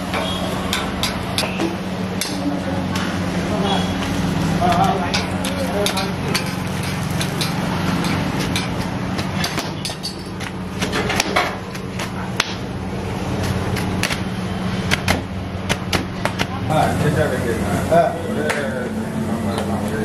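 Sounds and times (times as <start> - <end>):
metal spatula on griddle: 0.0 - 2.4, 4.0 - 12.4.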